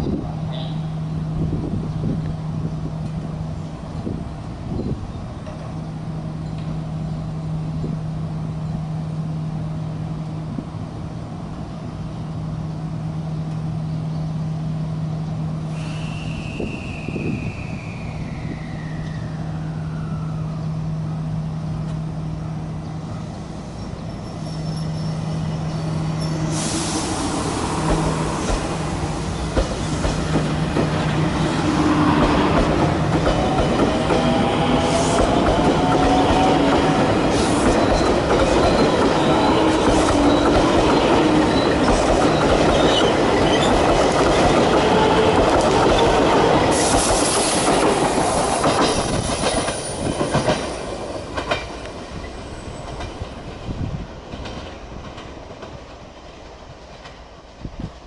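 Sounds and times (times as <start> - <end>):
wheels rumbling on rail: 0.0 - 58.0
wheels clacking over rail joints: 27.8 - 57.3.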